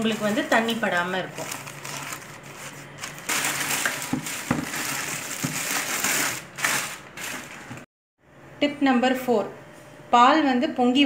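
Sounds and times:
plastic bin liner rustling: 0.0s - 7.8s
newspaper crumpling: 1.2s - 7.9s.

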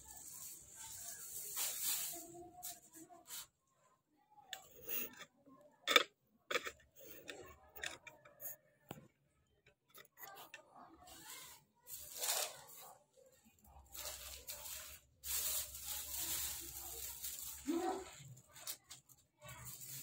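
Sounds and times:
plastic bag crinkling: 0.0s - 3.4s, 11.0s - 13.0s, 13.7s - 20.0s
handling potting mix and plant pot: 0.0s - 3.8s, 4.4s - 20.0s.

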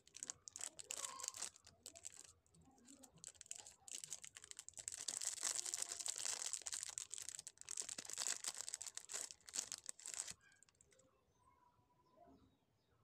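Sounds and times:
cellophane bag crinkling: 0.0s - 11.0s.

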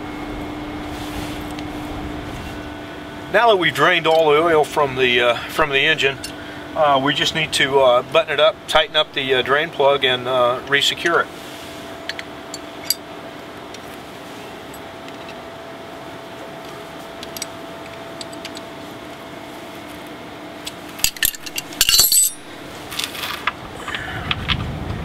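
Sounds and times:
faint steady hum: 0.0s - 25.0s
metal wrenches clinking: 12.1s - 13.0s, 21.0s - 23.2s.

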